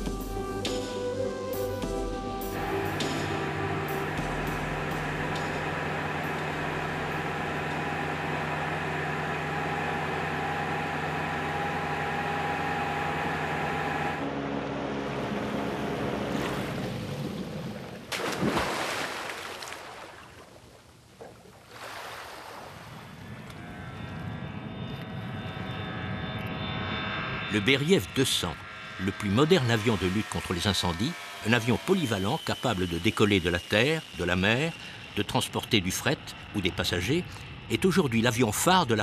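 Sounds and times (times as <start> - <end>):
motorboat engine: 0.0 - 19.5, 21.0 - 39.0
wind: 4.0 - 39.0
rushing water: 16.3 - 23.1.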